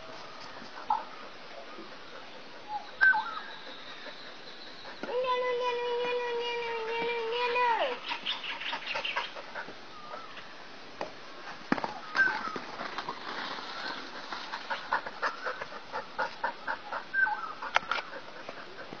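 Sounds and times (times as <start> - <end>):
bird calls and clucks: 8.0 - 10.5, 13.8 - 19.0.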